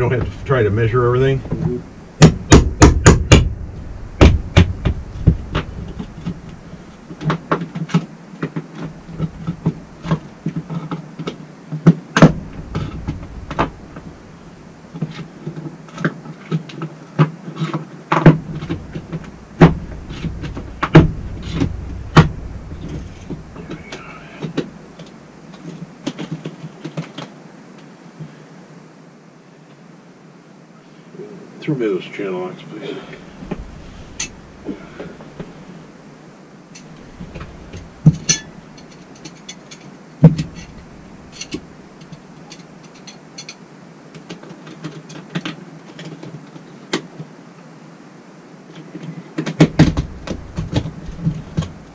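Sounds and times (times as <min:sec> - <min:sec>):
sharp knocks on floor: 0:02.2 - 0:03.6, 0:04.2 - 0:06.5, 0:18.2 - 0:23.8.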